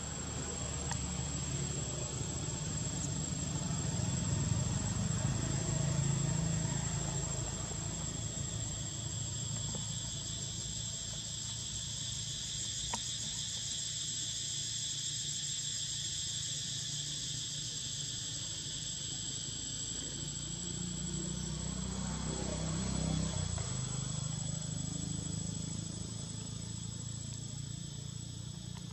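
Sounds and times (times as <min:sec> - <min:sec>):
insects buzzing chorus: 0:00.0 - 0:28.9.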